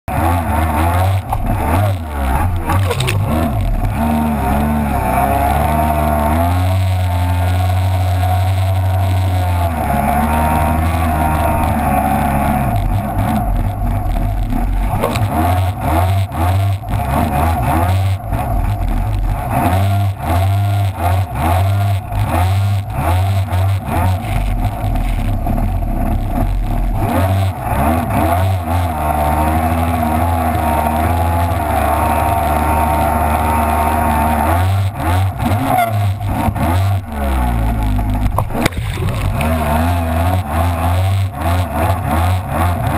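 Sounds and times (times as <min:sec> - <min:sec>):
jet ski engine revving: 0:00.1 - 0:42.9
water splashing against hull: 0:01.3 - 0:04.3, 0:35.9 - 0:40.6.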